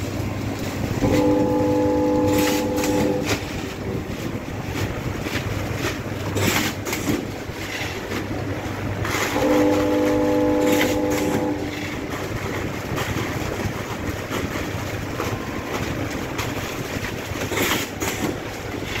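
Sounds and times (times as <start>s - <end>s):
packaging machine running: 0.0s - 19.0s
horn-like tone: 1.0s - 3.4s, 9.3s - 12.0s, 15.2s - 16.2s.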